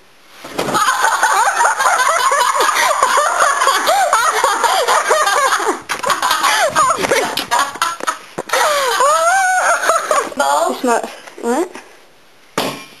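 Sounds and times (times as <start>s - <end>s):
girls giggling: 0.7s - 10.7s.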